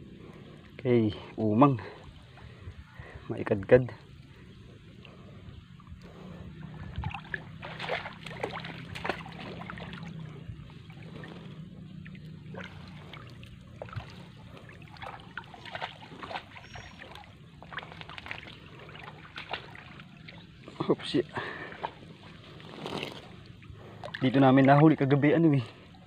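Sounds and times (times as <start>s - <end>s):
water dripping and splashing: 6.8s - 24.8s
net and rope rustling: 21.7s - 23.7s.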